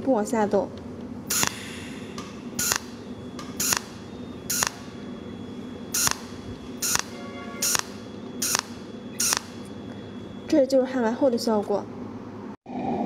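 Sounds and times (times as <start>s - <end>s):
faint steady hum: 0.0s - 12.6s
welding torch hissing bursts: 1.3s - 3.0s, 3.6s - 4.9s, 5.9s - 9.6s.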